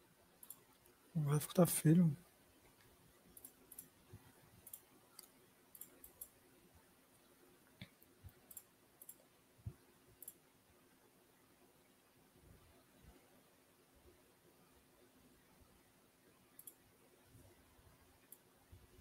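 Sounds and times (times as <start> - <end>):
faint steady hum: 0.0 - 19.0
computer mouse clicks: 0.4 - 0.9, 3.3 - 4.0, 4.6 - 6.4, 7.8 - 9.3, 10.2 - 10.5, 16.5 - 16.9, 18.2 - 18.5.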